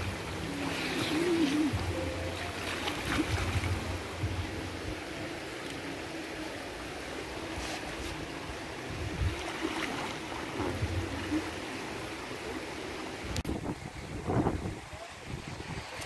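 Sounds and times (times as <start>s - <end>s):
pool water lapping: 0.0s - 13.4s
small splashes: 0.5s - 4.0s.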